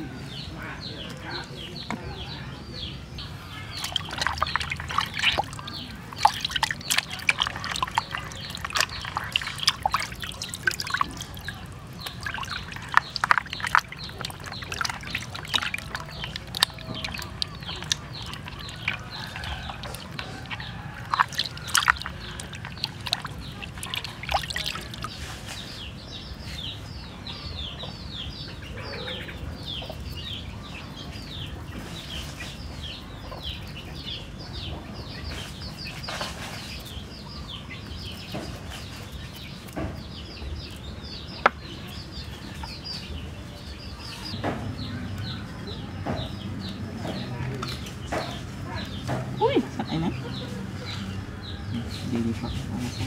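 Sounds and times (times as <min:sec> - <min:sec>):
bird chirping: 0:00.0 - 0:53.0
water dripping: 0:03.2 - 0:25.3
water splashing in a plastic basin: 0:03.2 - 0:26.2.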